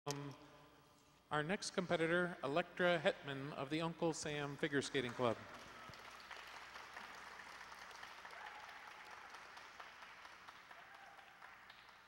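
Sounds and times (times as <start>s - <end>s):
audience applause: 5.0s - 12.0s.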